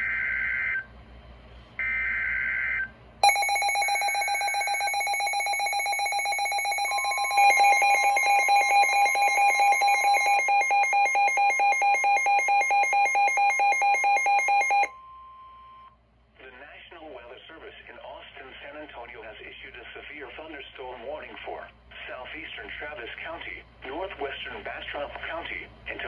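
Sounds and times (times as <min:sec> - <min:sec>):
fast pulsing alert beep: 0:03.2 - 0:14.9
steady warning tone: 0:03.2 - 0:14.9.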